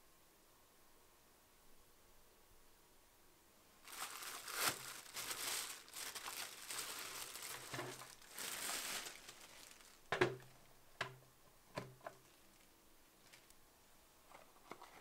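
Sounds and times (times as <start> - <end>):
plastic bag crinkling: 3.8 - 10.4, 12.2 - 13.6.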